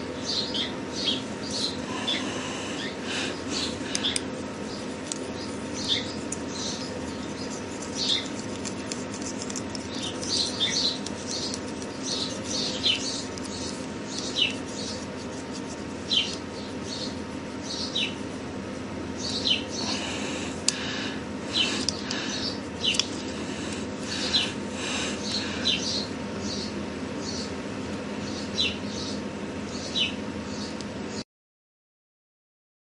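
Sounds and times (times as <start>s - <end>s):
steady low hum: 0.0s - 31.2s.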